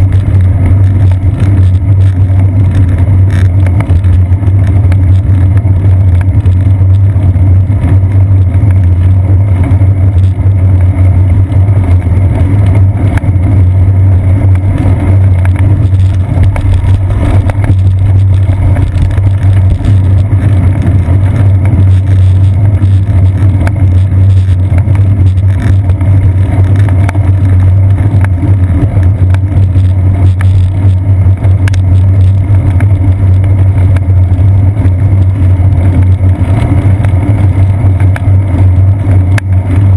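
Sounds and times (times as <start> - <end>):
road vibration rumble: 0.0 - 39.9
wind buffeting: 13.8 - 28.7.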